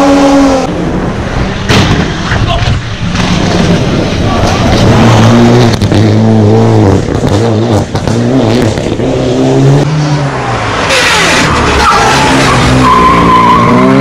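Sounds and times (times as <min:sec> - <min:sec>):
race car engines accelerating: 0:00.0 - 0:14.0
racing car revving with whine: 0:03.1 - 0:14.0.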